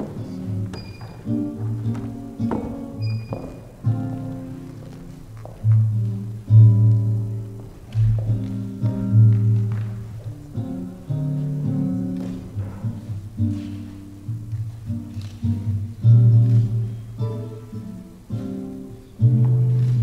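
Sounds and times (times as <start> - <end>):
guitar playing slow chords: 0.0 - 20.0.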